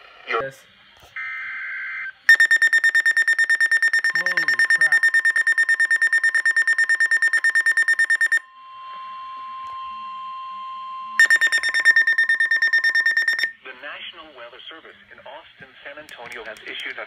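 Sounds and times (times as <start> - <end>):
steady lower alarm tone: 1.2 - 13.6
rapid high alarm beeping: 2.3 - 13.6.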